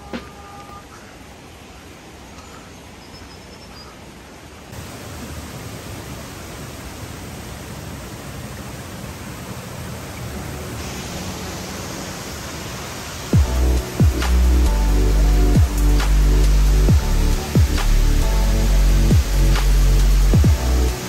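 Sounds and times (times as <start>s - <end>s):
waterfall and river rushing: 0.0s - 21.0s.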